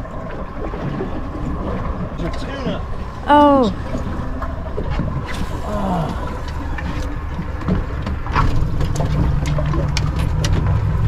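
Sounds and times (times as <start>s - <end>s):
boat engine drone: 0.0s - 11.0s
water noise: 0.0s - 11.0s
wind: 0.0s - 11.0s.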